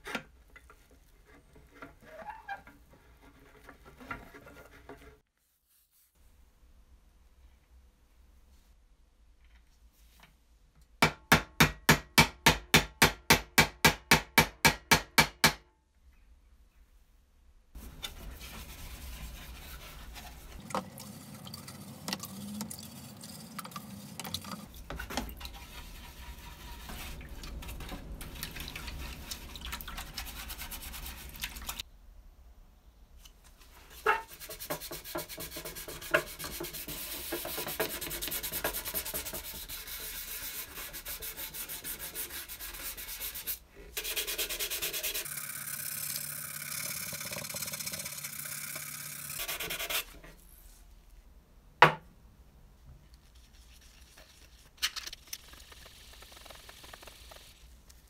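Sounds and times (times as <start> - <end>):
brush scrubbing plastic in water: 17.8 - 31.8, 33.9 - 45.3, 53.2 - 58.0.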